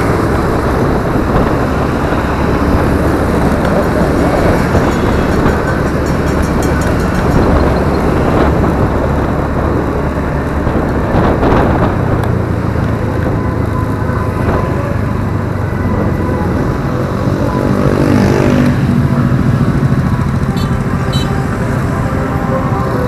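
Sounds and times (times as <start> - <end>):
motorbike engine passing: 0.0 - 23.0
road and wind noise: 0.0 - 23.0
scooter engine running: 0.0 - 23.0.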